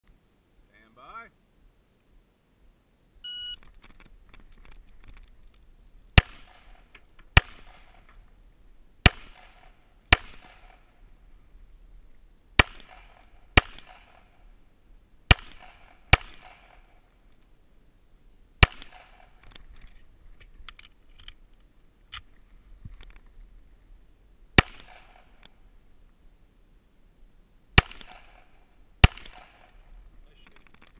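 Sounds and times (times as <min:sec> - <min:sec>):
shot timer beep: 0:03.2 - 0:03.6
pistol shots with echo: 0:06.2 - 0:08.1, 0:09.0 - 0:11.0, 0:12.6 - 0:14.4, 0:15.3 - 0:17.0, 0:18.6 - 0:19.4, 0:24.6 - 0:25.4, 0:27.8 - 0:29.9.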